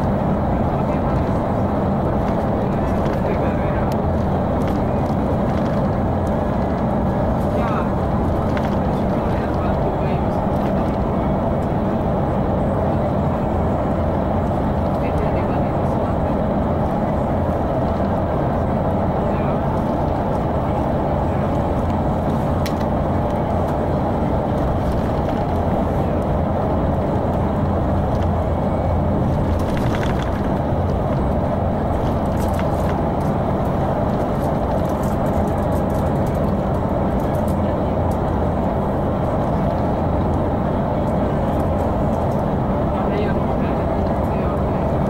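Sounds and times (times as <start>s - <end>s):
bus engine hum: 0.0s - 45.0s
road noise: 0.0s - 45.0s.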